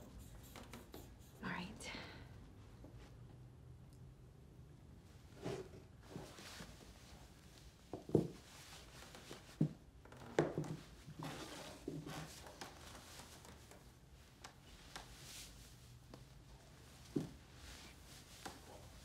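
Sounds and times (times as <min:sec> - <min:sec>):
clothing rustling: 0:05.4 - 0:09.8, 0:10.6 - 0:19.0.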